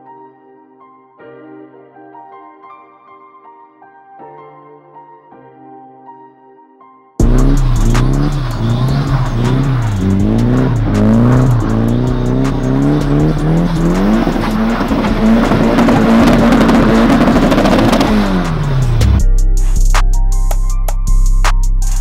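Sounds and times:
tyres spinning in snow: 0:07.2 - 0:19.0
car engine revving: 0:07.2 - 0:19.2.

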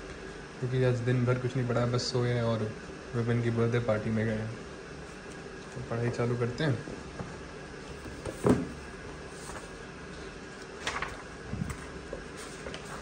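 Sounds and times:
pages rustling: 0:07.8 - 0:09.9, 0:10.5 - 0:13.0
book knocking on desk: 0:08.1 - 0:08.8.

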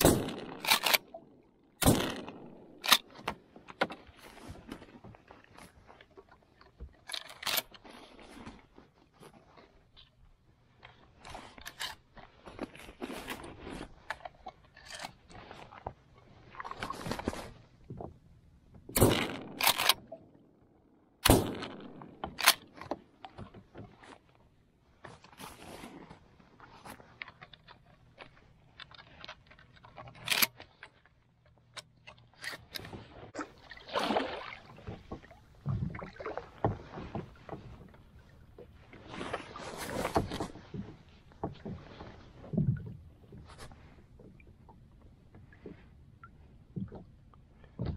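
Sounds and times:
shotgun shots: 0:00.0 - 0:01.0, 0:01.8 - 0:03.0, 0:19.0 - 0:20.1, 0:21.2 - 0:22.6
gun being reloaded: 0:00.0 - 0:01.2, 0:01.8 - 0:03.1, 0:07.1 - 0:07.7, 0:19.0 - 0:20.2, 0:21.2 - 0:22.8, 0:30.2 - 0:30.6
paddle knocking and splashing: 0:00.0 - 0:10.1, 0:11.0 - 0:31.2, 0:32.0 - 0:47.9.

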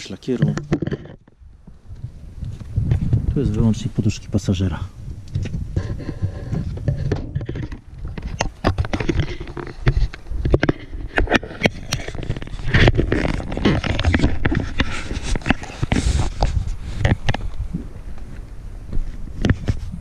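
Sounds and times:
camera handling knocks and scrapes: 0:00.4 - 0:01.4, 0:05.3 - 0:17.6, 0:19.0 - 0:19.9.

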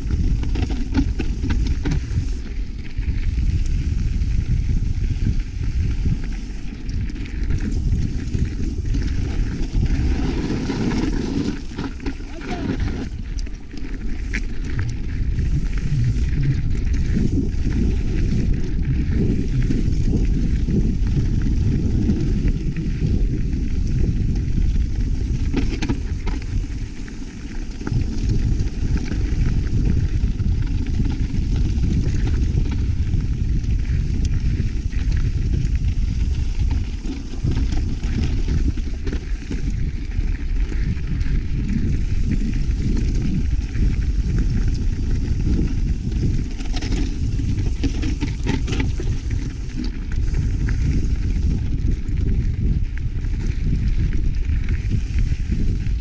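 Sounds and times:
bike knocks and rattles: 0:00.0 - 0:02.4, 0:24.4 - 0:30.0
wind buffeting microphone: 0:00.0 - 0:56.0.

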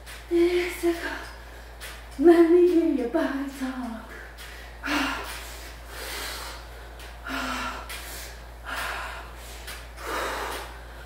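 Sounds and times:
woman panting: 0:04.1 - 0:11.0.

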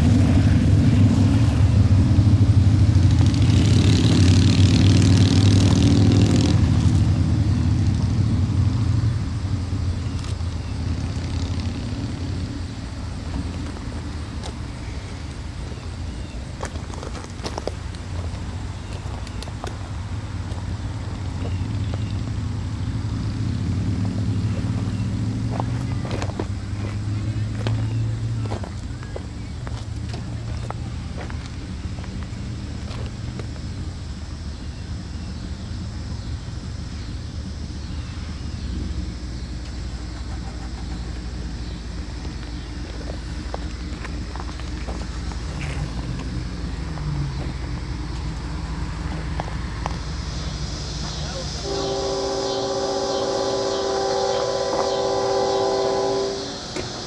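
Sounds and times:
locomotive engine droning: 0:00.0 - 0:57.0.

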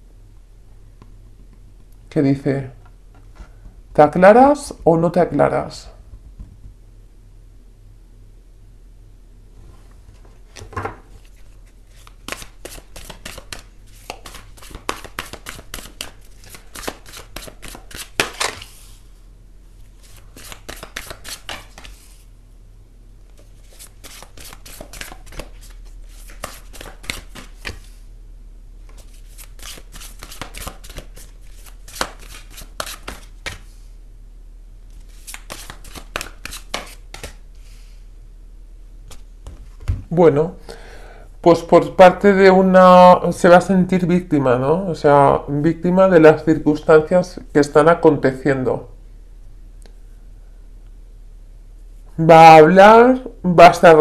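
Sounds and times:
low steady hum: 0:00.0 - 0:54.0
cards being shuffled: 0:10.4 - 0:19.0, 0:19.9 - 0:22.2, 0:23.3 - 0:28.0, 0:28.8 - 0:33.8, 0:34.9 - 0:37.4, 0:39.0 - 0:40.0.

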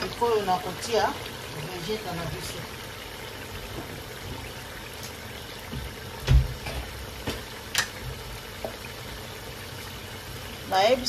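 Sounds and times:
low thump: 0:05.7 - 0:07.4.

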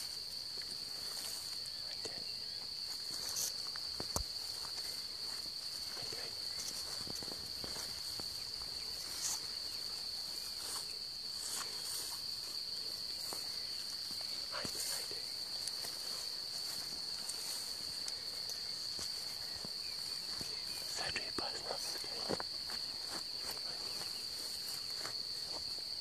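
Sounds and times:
footsteps swishing through tall grass: 0:00.0 - 0:26.0
insects chirring: 0:00.0 - 0:26.0.

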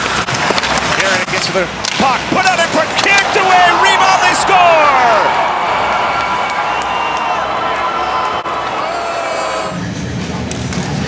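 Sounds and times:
voices calling out: 0:02.0 - 0:09.8
crowd cheering: 0:02.2 - 0:09.9.

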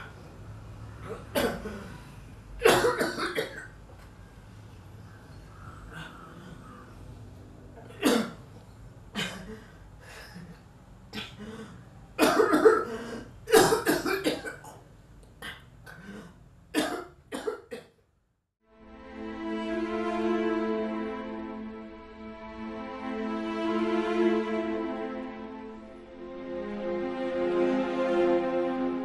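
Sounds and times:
man coughing harshly: 0:01.1 - 0:02.0, 0:02.6 - 0:03.7, 0:07.9 - 0:08.4, 0:12.2 - 0:14.8, 0:16.7 - 0:17.9
sad string music: 0:18.6 - 0:29.0.

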